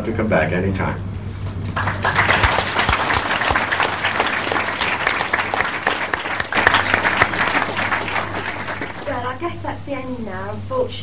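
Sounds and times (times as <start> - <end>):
crowd clapping: 1.4 - 9.6.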